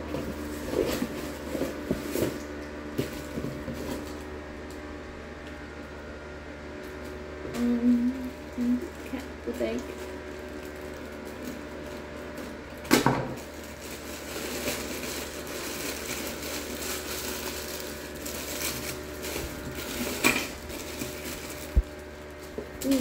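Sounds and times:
cellophane crinkling: 7.6 - 23.0
plastic bag crinkling: 8.4 - 23.0
scissors cutting plastic: 22.5 - 23.0.

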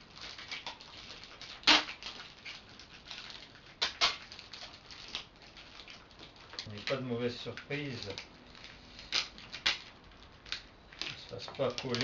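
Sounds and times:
tape crackling and rustling: 0.0 - 12.0
tape pulling rasps: 0.3 - 4.4.

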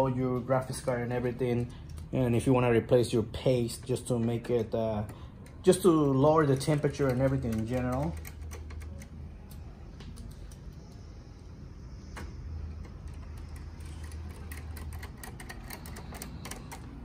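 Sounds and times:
low steady hum: 0.0 - 17.0
screwdriver clicking on metal: 5.4 - 9.6.

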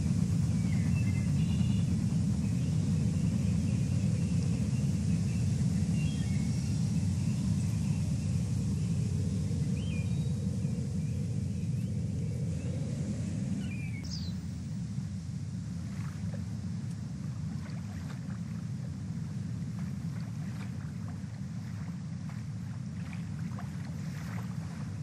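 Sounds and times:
low outdoor rumble: 0.0 - 25.0
faint high chirps: 9.8 - 14.5.

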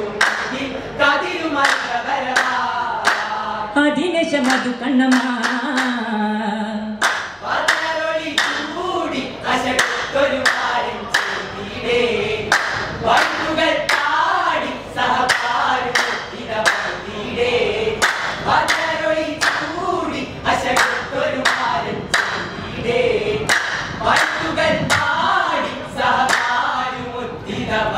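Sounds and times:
men singing together: 0.0 - 3.7, 7.3 - 27.9
rhythmic handclaps: 0.1 - 3.6, 4.4 - 6.2, 7.0 - 27.0.

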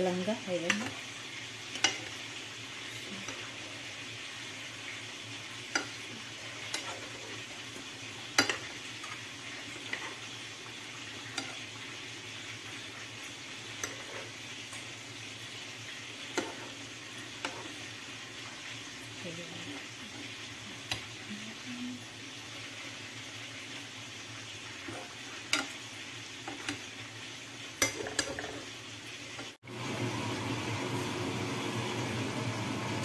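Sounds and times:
food sizzling in a frying pan: 0.0 - 33.0
metal spoon clinking on pan: 27.8 - 28.5.

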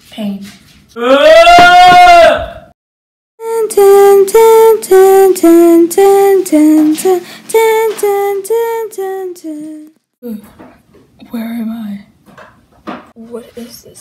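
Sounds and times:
woman singing wordless tune: 3.4 - 10.5.

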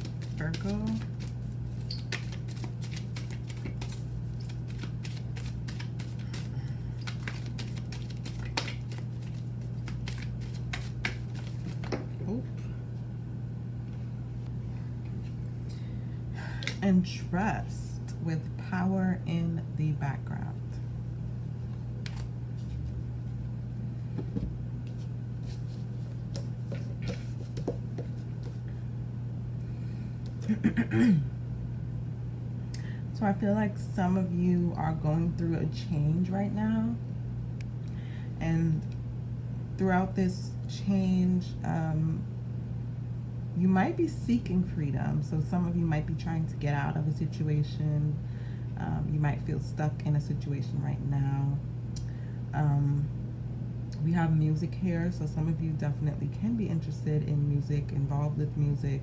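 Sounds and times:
cards shuffled by hand: 0.0 - 12.1, 21.7 - 23.0, 24.9 - 28.6
low hum: 0.0 - 59.0.

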